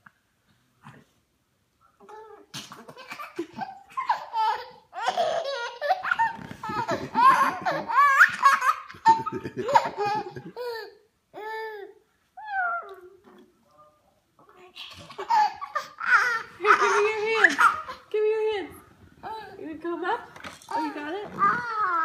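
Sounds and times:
baby laughing: 2.1 - 11.8, 14.6 - 18.1, 20.7 - 22.0.

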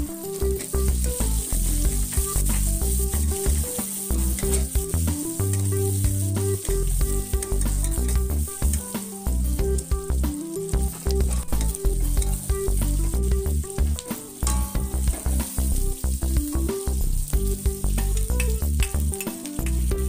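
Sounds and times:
metal spatula scraping wok: 0.0 - 9.8, 10.5 - 16.4
background music with bass: 0.0 - 20.0
food sizzling in hot oil: 0.0 - 20.0
spatula clicking against pan: 18.0 - 19.9.

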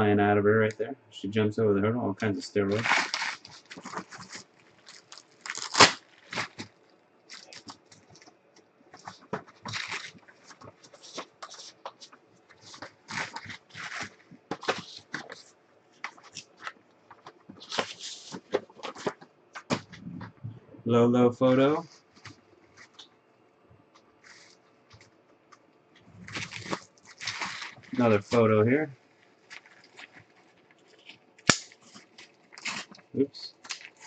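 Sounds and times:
paper and bubble wrap crinkling: 2.6 - 20.0, 26.0 - 34.0.

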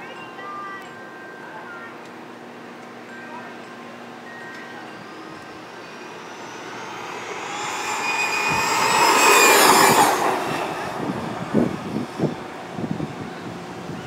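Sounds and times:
toy truck electric motor whining: 5.1 - 10.7.

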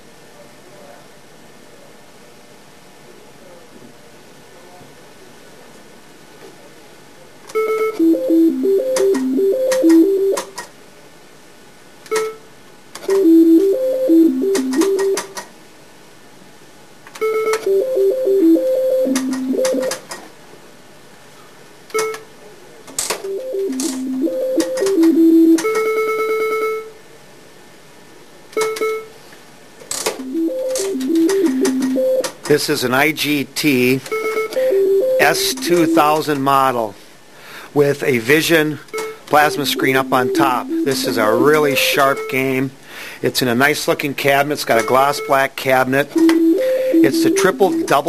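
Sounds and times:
held beep with rapid clicking: 7.6 - 10.6, 13.1 - 15.4, 17.2 - 20.0, 30.2 - 32.4, 34.1 - 36.6, 38.9 - 42.6, 44.7 - 45.5, 46.1 - 48.0
quick electronic tune: 30.2 - 32.3, 34.4 - 36.4, 39.1 - 42.6, 46.2 - 48.0
short electronic beep: 34.2 - 36.4, 39.0 - 42.6, 46.2 - 48.0.

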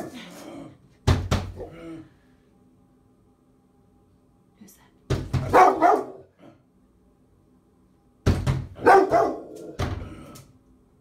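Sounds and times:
dog barking deeply: 5.4 - 6.4, 8.8 - 9.8.

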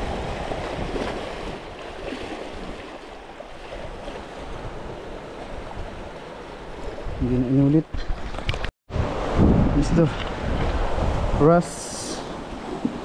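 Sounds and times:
wind buffeting microphone: 3.6 - 13.0.

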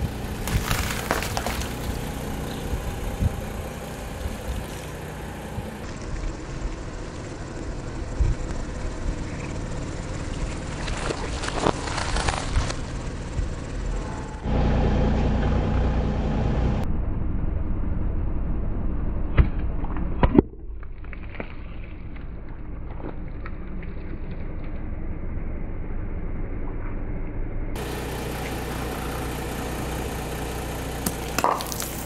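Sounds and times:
tyre rolling on wet asphalt: 0.0 - 5.8
car engine running: 0.0 - 20.2, 22.3 - 32.0
plastic cups bursting under tyre: 0.4 - 2.2, 31.0 - 32.0.

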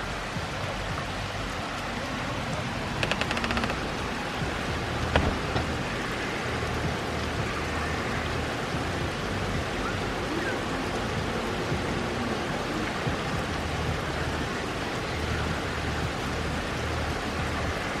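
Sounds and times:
steady rain: 0.0 - 18.0
rattle of clicks: 3.0 - 4.0.

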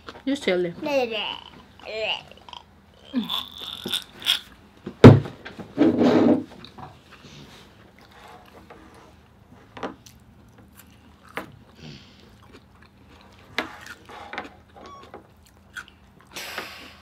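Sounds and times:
chewing: 10.0 - 16.4.

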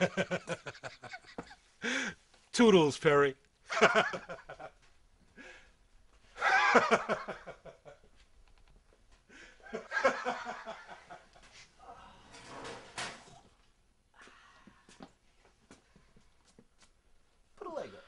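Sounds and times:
man laughing: 0.0 - 2.0, 6.4 - 8.0.

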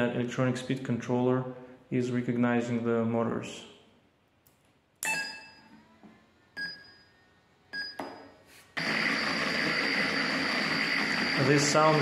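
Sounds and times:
steady loud noise: 8.8 - 12.0.

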